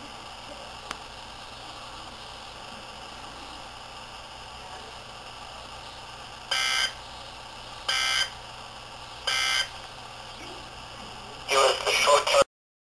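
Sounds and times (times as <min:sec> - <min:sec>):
radio static hiss: 0:00.0 - 0:12.5
short data-tone bursts: 0:06.5 - 0:07.1, 0:07.9 - 0:08.4, 0:09.2 - 0:09.7.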